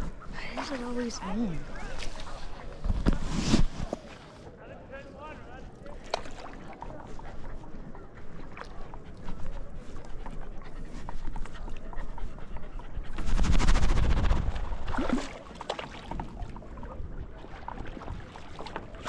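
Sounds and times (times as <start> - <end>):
dog panting: 6.8 - 14.7.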